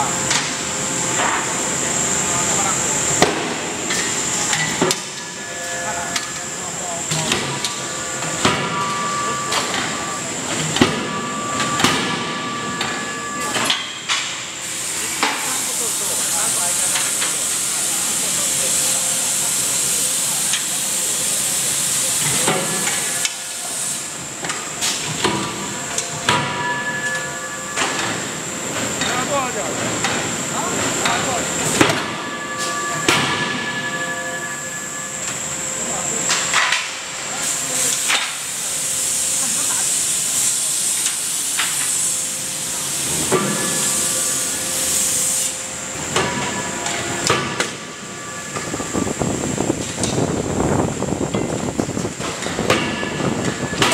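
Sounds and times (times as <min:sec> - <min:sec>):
loud steady hiss: 0:14.6 - 0:24.4, 0:37.2 - 0:46.2.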